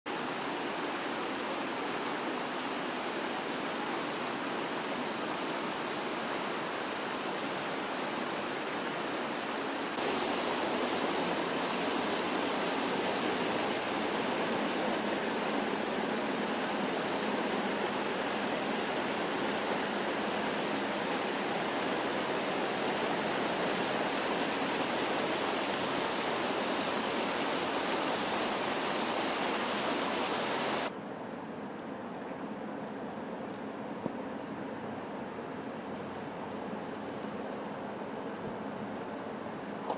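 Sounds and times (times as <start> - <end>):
water rushing and cascading: 0.1 - 30.9.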